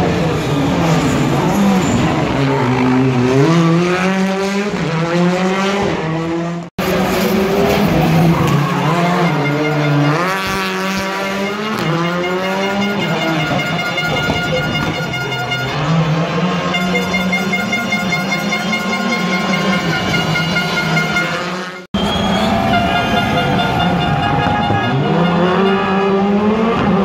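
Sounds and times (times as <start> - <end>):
car engine revving hard: 0.8 - 13.8, 24.5 - 27.0.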